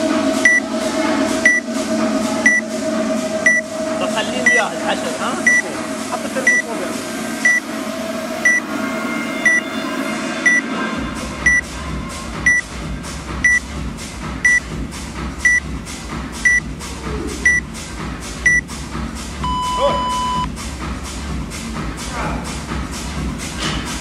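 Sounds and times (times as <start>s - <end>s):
short high beeps: 19.4s - 20.5s.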